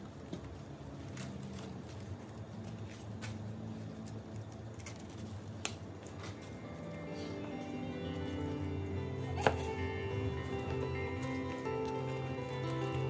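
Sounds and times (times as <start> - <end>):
leaves rustling and snapping: 0.2 - 6.4.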